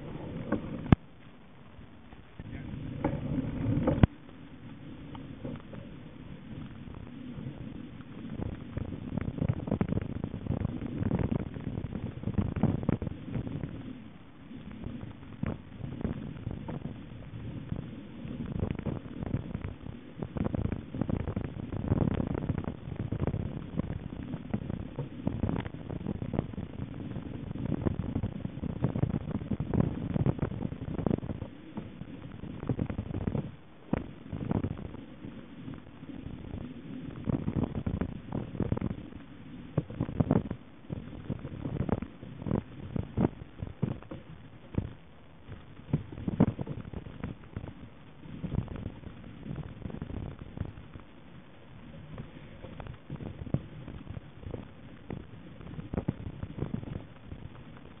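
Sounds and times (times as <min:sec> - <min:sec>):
bike rattling over rough trail: 0:00.0 - 0:51.0
mountain bike rattling on rough trail: 0:02.5 - 0:07.7.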